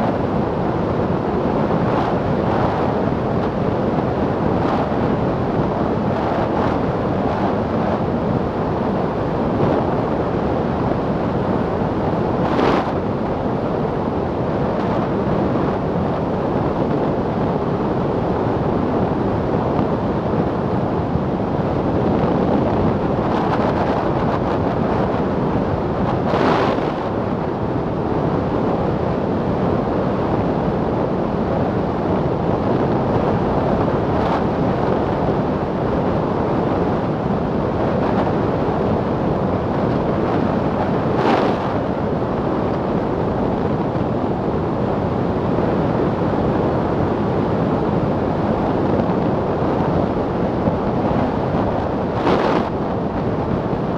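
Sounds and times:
wind rushing over microphone: 0.0 - 53.9
road noise: 32.3 - 53.9.

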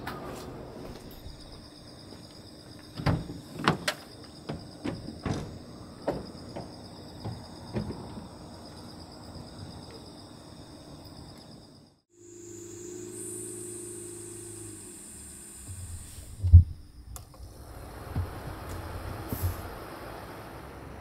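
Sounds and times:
insects chirping: 0.2 - 21.0
knocks and thuds: 3.0 - 8.4, 18.0 - 18.6.

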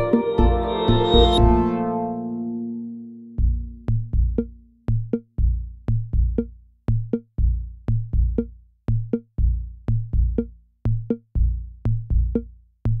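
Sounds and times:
drum machine kick beat: 0.0 - 1.7, 3.4 - 13.0
electronic music: 0.0 - 4.5
bass line: 0.0 - 13.0.

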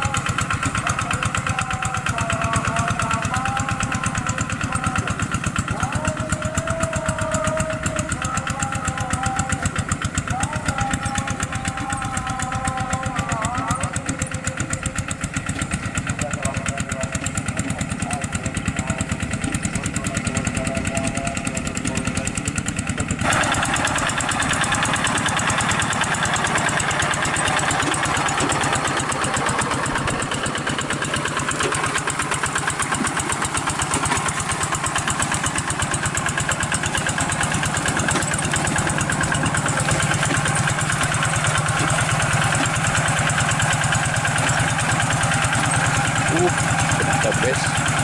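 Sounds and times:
diesel engine chugging: 0.0 - 48.0.

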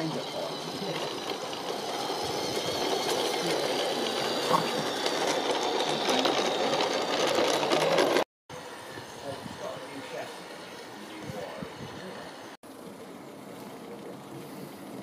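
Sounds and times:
model train clattering: 0.0 - 8.2.

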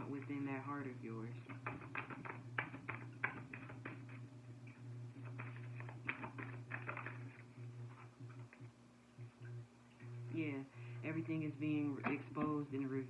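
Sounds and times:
steady low hum: 0.0 - 13.0
cards being shuffled: 1.5 - 4.2, 5.2 - 8.5.

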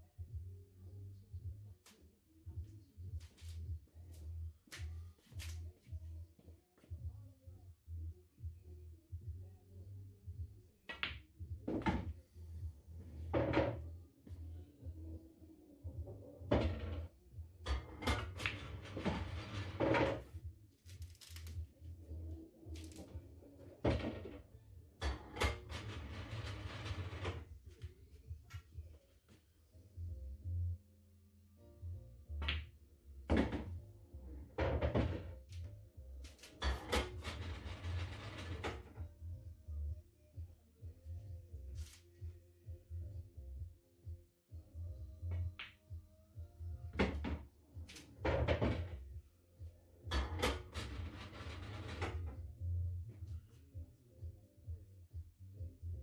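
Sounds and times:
pool balls knocking: 17.7 - 20.3, 50.2 - 52.4
ball rattling inside table: 17.7 - 21.6, 25.0 - 27.6, 36.3 - 39.0, 50.1 - 52.4.

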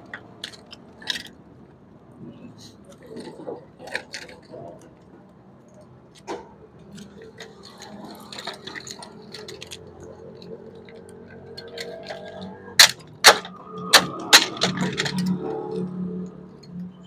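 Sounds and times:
wire clicking and scraping: 5.7 - 17.0.

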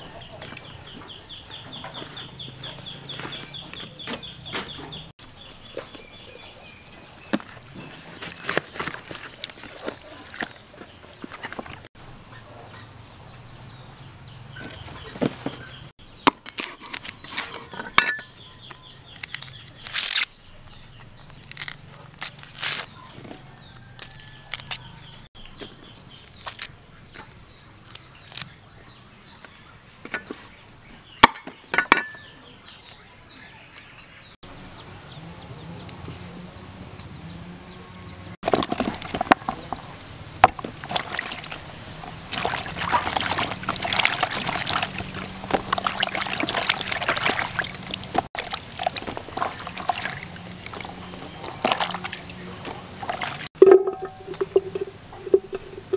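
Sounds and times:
corn husks tearing and snapping: 16.2 - 17.7, 18.7 - 25.0, 26.1 - 28.6, 40.6 - 53.5
hands splashing in water basin: 40.7 - 55.6.

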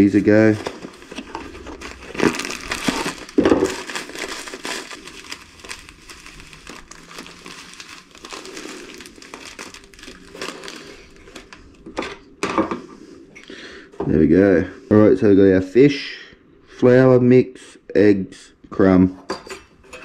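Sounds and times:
plastic packet crinkling: 0.0 - 12.0.

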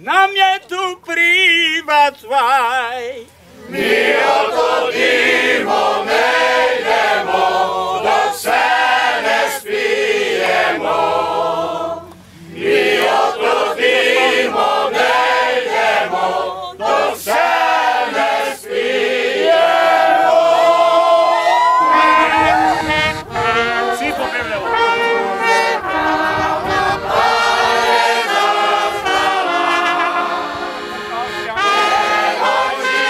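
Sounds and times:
men singing unaccompanied: 0.0 - 30.7, 31.6 - 33.0
voice holding long note: 21.4 - 27.5.

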